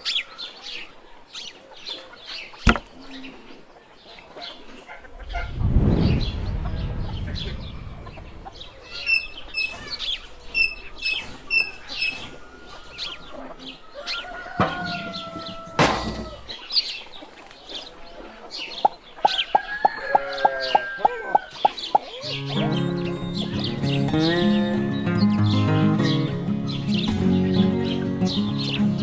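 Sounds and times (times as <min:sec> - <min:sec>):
chickens clucking: 0:00.0 - 0:29.0
small birds chirping: 0:00.0 - 0:29.0
low rumble: 0:05.1 - 0:10.6
held crow-like call: 0:08.6 - 0:16.5, 0:19.2 - 0:21.6
evenly spaced ticks: 0:09.2 - 0:13.0.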